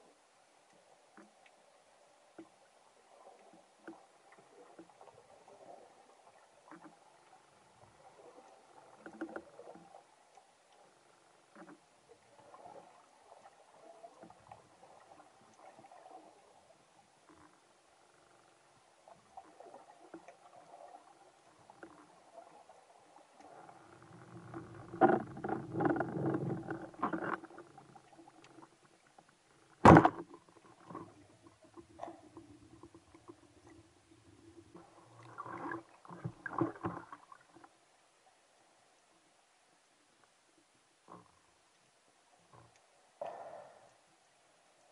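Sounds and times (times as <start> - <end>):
faint steady hum: 0.0 - 44.9
muffled underwater rumbling and knocks: 23.6 - 29.0, 29.7 - 37.2
speargun firing crack underwater: 29.8 - 30.4.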